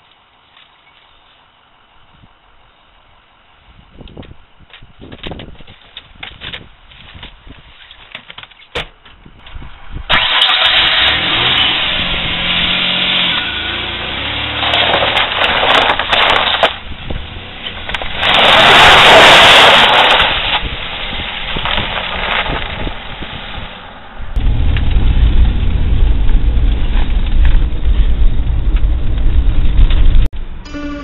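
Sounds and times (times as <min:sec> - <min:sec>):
car engine starting and running: 0:09.4 - 0:31.0.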